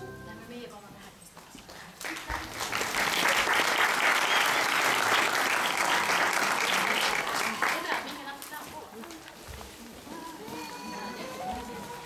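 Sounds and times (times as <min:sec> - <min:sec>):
audience applauding: 0:01.7 - 0:08.4.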